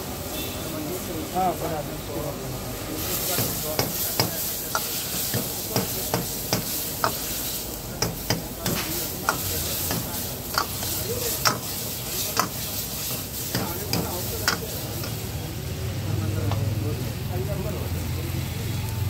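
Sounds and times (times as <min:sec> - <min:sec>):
food sizzling in sauce: 0:00.0 - 0:19.0.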